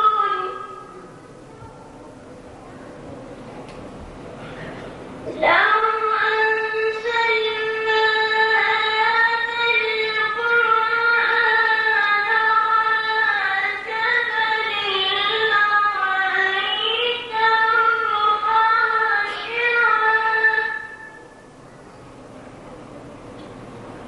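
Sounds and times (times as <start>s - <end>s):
boy reciting melodically: 0.0s - 3.0s, 5.2s - 21.4s.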